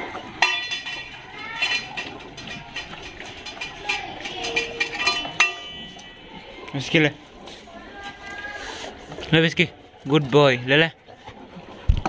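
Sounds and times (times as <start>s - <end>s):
metal dog bowls clanking on tiles: 0.0s - 7.0s.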